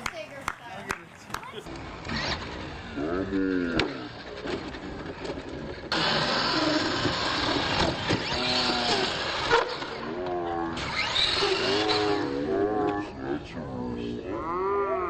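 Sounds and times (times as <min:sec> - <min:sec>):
toy truck motor whirring: 0:02.0 - 0:12.5.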